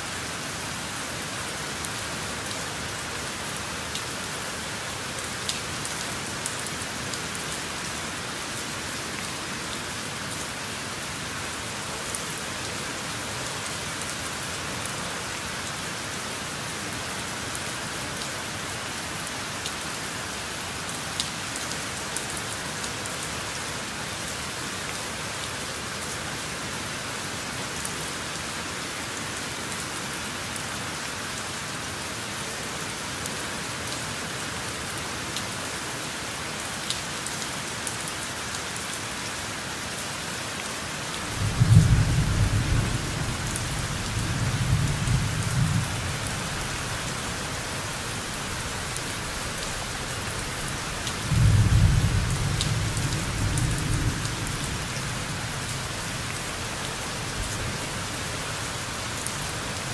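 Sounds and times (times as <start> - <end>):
steady rain: 0.0 - 59.9
low rumble of thunder: 41.3 - 46.0, 51.3 - 54.9.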